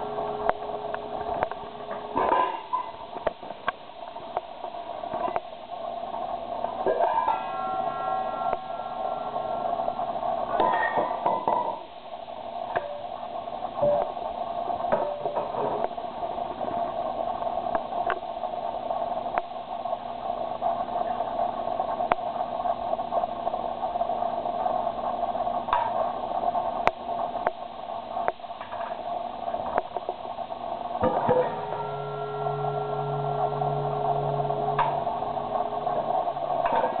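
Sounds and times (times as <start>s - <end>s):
steady background noise: 0.0s - 37.0s
struck bowl ringing: 7.0s - 9.7s, 31.2s - 36.5s.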